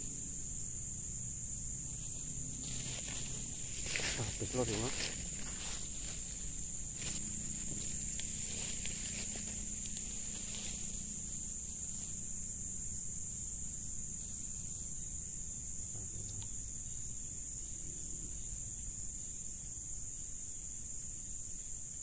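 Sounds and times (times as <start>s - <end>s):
high-pitched insect drone: 0.0s - 22.0s
faint rustles: 1.8s - 12.3s.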